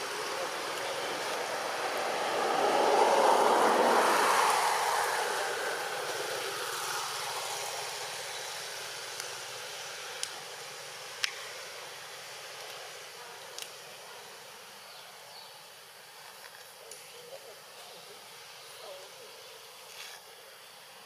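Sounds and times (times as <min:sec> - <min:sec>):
vehicle passing: 0:00.0 - 0:10.1.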